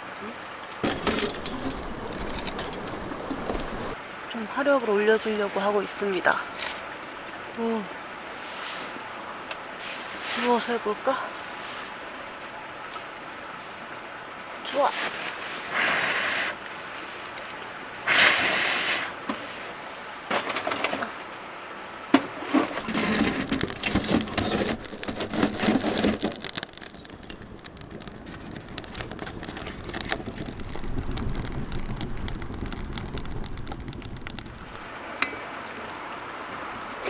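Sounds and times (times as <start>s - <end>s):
fire rumbling and crackling: 0.8s - 4.0s, 22.2s - 36.0s.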